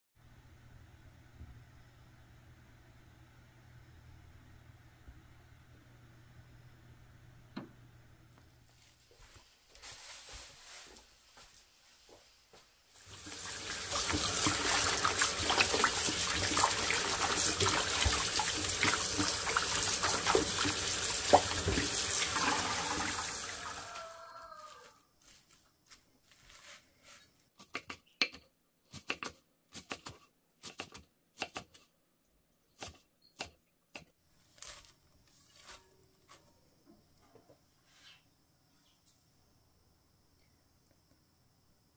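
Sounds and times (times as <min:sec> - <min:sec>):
tap water running into basin: 0:13.0 - 0:23.8.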